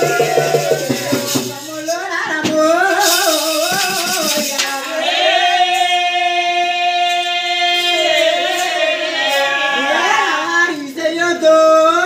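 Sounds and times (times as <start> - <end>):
frame drum: 0.0 - 6.0
small percussion: 0.0 - 11.0
folk singing: 0.0 - 12.0.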